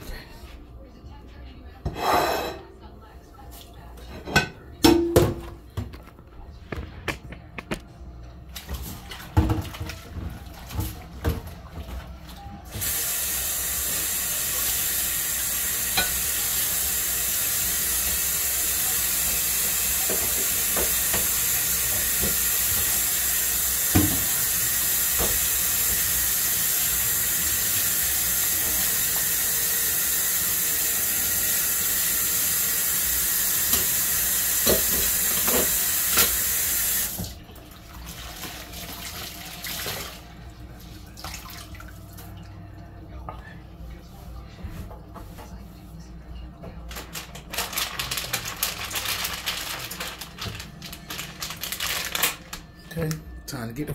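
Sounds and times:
dishes knocking and clinking: 0:04.2 - 0:06.1
faucet running into sink: 0:12.7 - 0:40.2.

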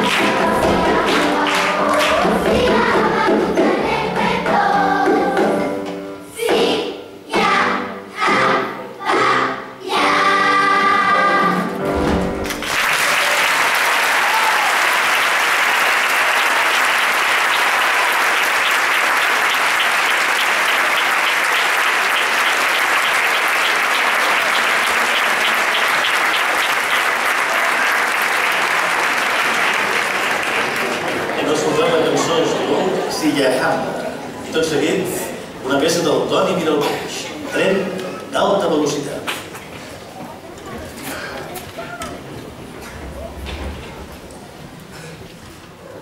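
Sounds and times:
audience applauding: 0:00.0 - 0:02.9, 0:12.4 - 0:32.8
children's choir singing: 0:00.0 - 0:12.4.

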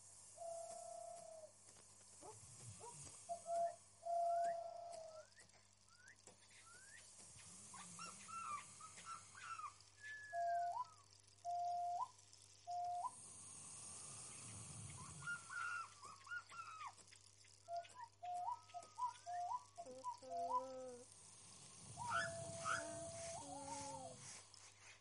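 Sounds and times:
animal whines and yelps: 0:02.2 - 0:05.4, 0:07.8 - 0:11.0, 0:15.2 - 0:17.0, 0:17.7 - 0:21.0, 0:22.0 - 0:24.3.

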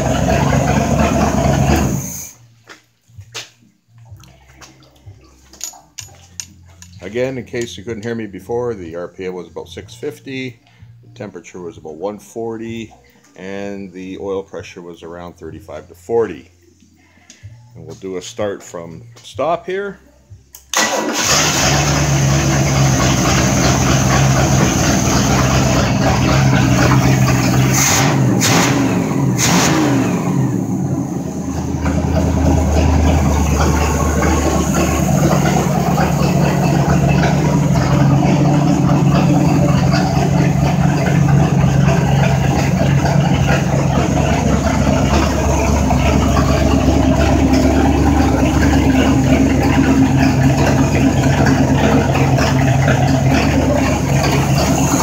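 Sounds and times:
boat engine starting and idling: 0:00.0 - 0:02.5, 0:04.0 - 0:15.9, 0:20.7 - 0:55.0.

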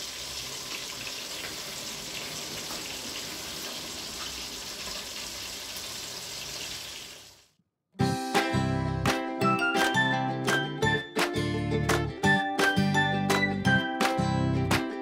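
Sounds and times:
meatballs sizzling in frying pan: 0:00.0 - 0:07.5.

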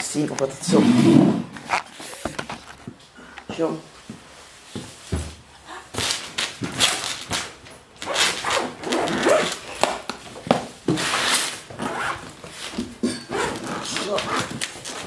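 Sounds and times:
suitcase zipper pulled shut: 0:08.0 - 0:09.6.

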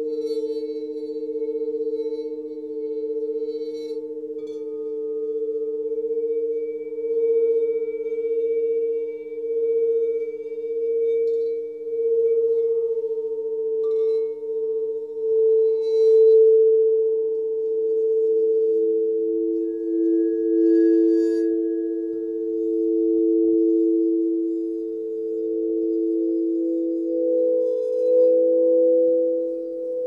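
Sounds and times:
pure drone tones: 0:00.0 - 0:30.0.

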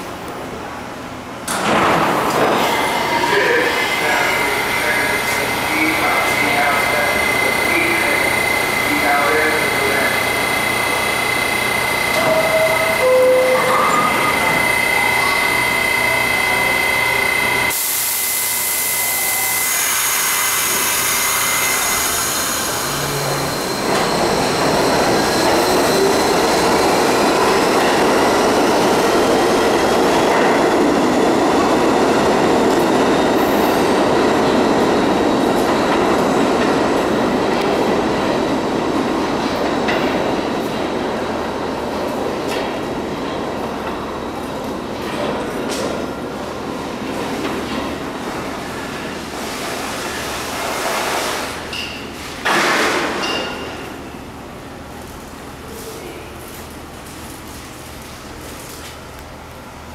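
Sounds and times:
subway train steady tone: 0:00.0 - 0:59.9
train motors whining: 0:04.3 - 0:26.7.

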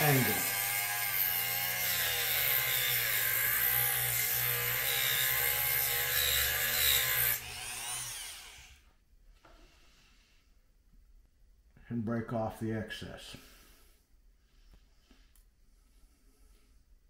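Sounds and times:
rotary tool cutting metal: 0:00.0 - 0:08.8.

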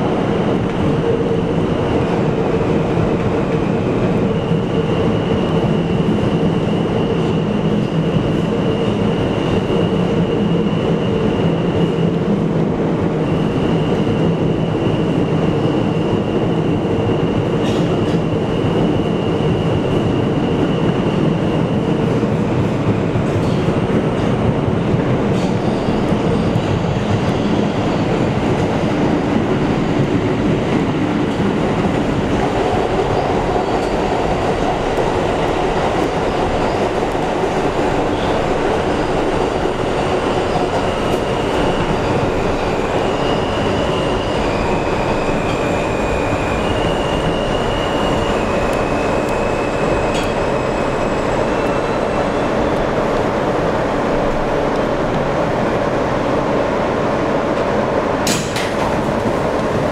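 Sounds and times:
subway train rumble and rail noise: 0:00.0 - 0:59.9.

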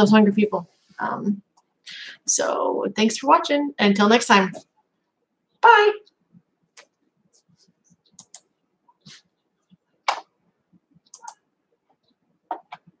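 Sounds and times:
faint clicks and taps: 0:06.0 - 0:13.0.

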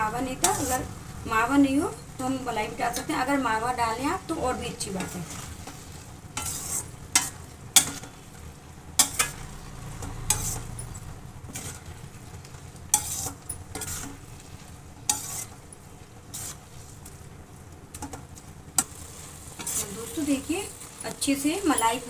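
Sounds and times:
low steady sizzle: 0:00.0 - 0:22.0
spatula scraping a metal pan: 0:00.4 - 0:00.9, 0:05.0 - 0:08.3, 0:09.0 - 0:12.0, 0:12.9 - 0:15.6, 0:16.3 - 0:17.0, 0:18.8 - 0:20.1.

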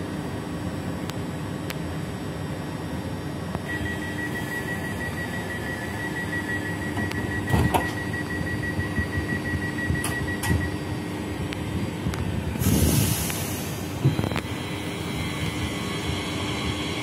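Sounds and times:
high warning tone: 0:03.6 - 0:11.2
train doors knocking shut: 0:07.4 - 0:08.0
short air hiss: 0:12.6 - 0:14.0.

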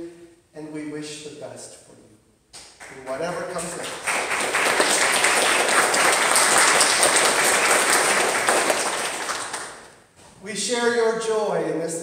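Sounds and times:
crowd applauding: 0:02.8 - 0:09.9.

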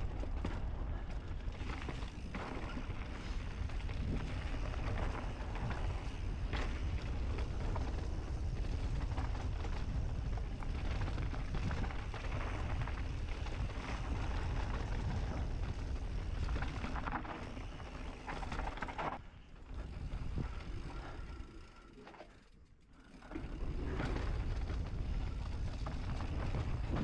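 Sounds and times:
bike rattling over bumps: 0:00.0 - 0:22.2, 0:23.0 - 0:27.0
bike tyre noise: 0:00.0 - 0:27.0
wind on microphone: 0:24.1 - 0:27.0.

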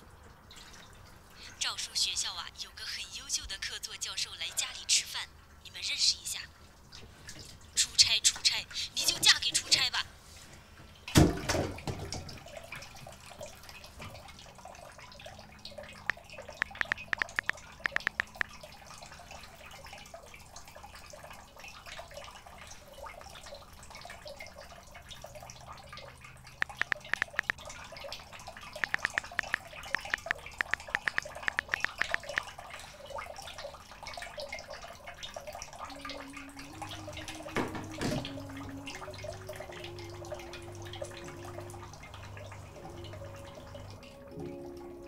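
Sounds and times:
water dripping: 0:00.0 - 0:02.3, 0:10.7 - 0:45.0
smartphone keyboard typing taps: 0:16.1 - 0:18.5, 0:26.6 - 0:27.6, 0:28.8 - 0:32.5.

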